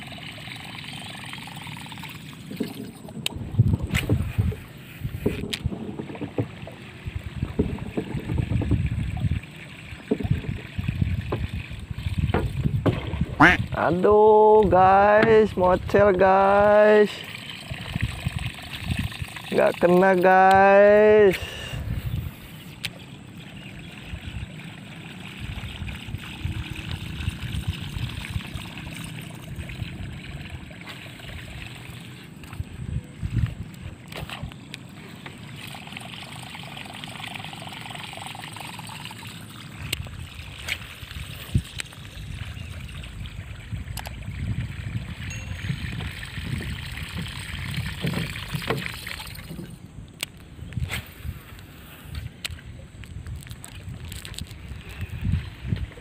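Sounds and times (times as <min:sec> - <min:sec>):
water slapping against boat: 0:02.2 - 0:21.4, 0:39.8 - 0:51.4.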